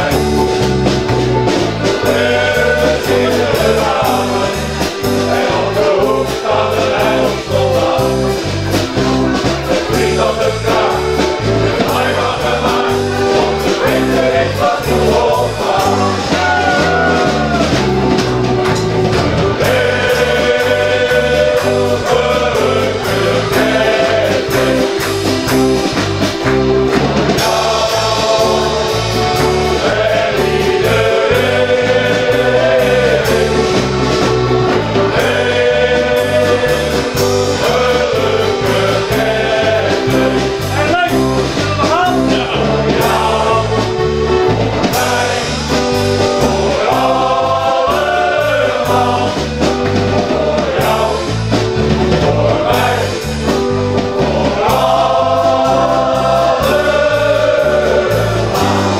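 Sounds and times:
accompaniment with bass beat: 0.0 - 58.9
choir singing: 0.0 - 58.9.

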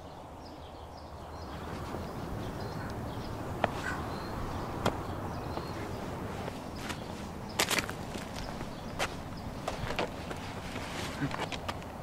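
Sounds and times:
rustling: 5.6 - 12.0.

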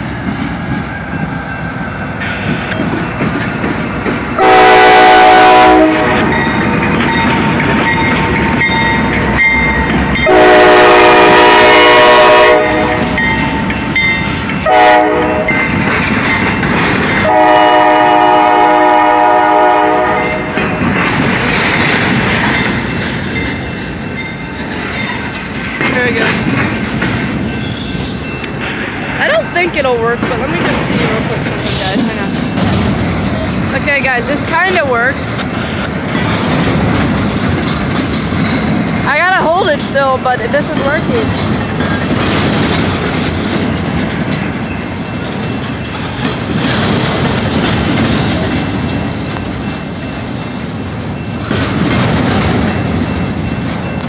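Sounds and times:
train rumbling by: 0.0 - 54.0
locomotive air horn blasts: 4.4 - 6.3, 10.2 - 13.2, 14.6 - 15.5, 17.2 - 20.5.

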